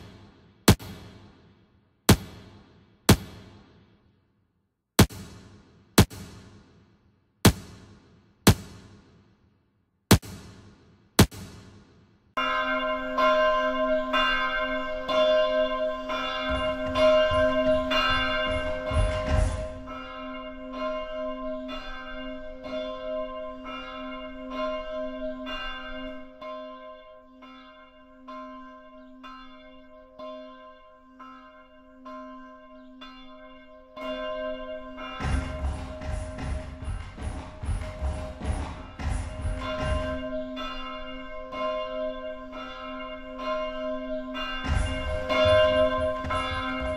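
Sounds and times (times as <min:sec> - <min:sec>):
bell ringing: 0:12.4 - 0:20.2, 0:34.0 - 0:41.6, 0:44.4 - 0:46.9.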